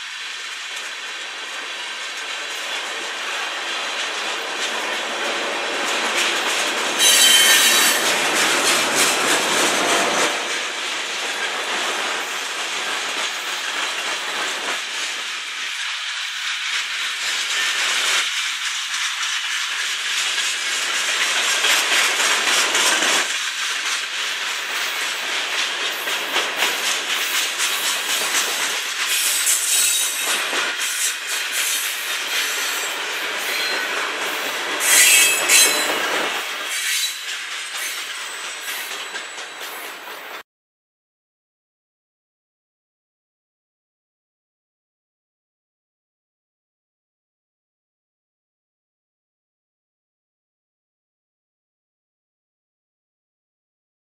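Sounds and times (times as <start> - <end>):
train wheels clicking on rails: 0.0 - 40.4
high wheel squeal: 7.0 - 8.2, 29.1 - 31.8, 32.4 - 33.9, 34.8 - 36.1, 36.7 - 39.9.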